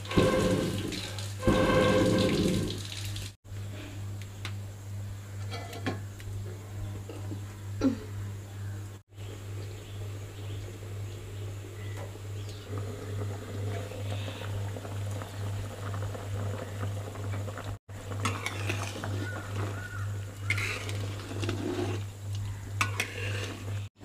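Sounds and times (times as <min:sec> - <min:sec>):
curry bubbling and crackling: 0:12.3 - 0:23.9.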